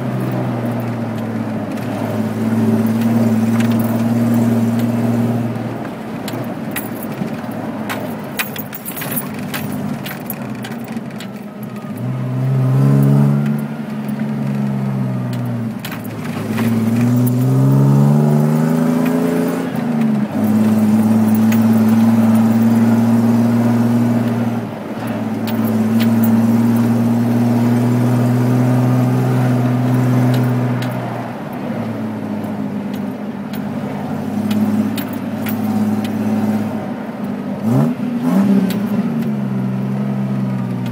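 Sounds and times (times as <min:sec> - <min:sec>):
vehicle engine revving: 0:00.0 - 0:06.5, 0:07.9 - 0:40.9
cab rattling and clicking: 0:00.0 - 0:12.3, 0:12.9 - 0:40.9.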